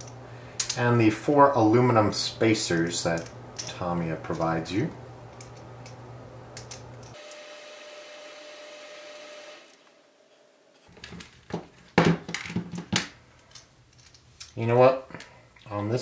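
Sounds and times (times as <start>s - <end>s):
clicks of small parts handled: 0.0s - 0.8s, 2.7s - 4.5s, 5.3s - 6.0s, 6.6s - 7.3s, 12.3s - 14.6s
faint steady hum and whine: 0.0s - 16.0s.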